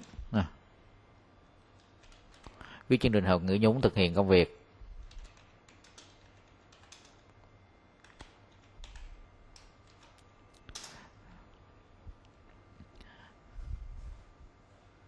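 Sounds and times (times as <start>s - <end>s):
faint keyboard typing: 1.6s - 2.8s, 4.9s - 13.2s.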